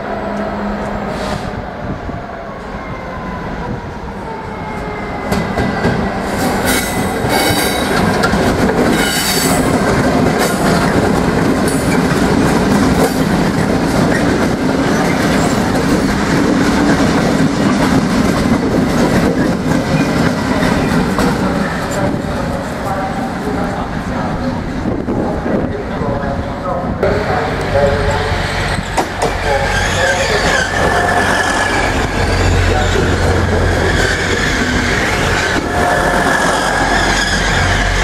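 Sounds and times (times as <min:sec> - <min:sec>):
diesel locomotive engines: 0:00.0 - 0:38.0
wheels clacking over rail joints: 0:05.3 - 0:22.0.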